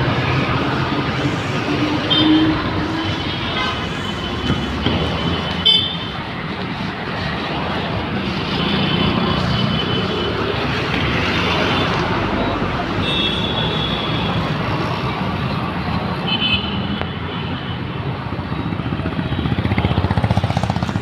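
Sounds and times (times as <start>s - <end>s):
dense street traffic: 0.0s - 21.0s
vehicle horns honking: 2.0s - 5.0s, 5.6s - 6.2s, 13.0s - 14.3s.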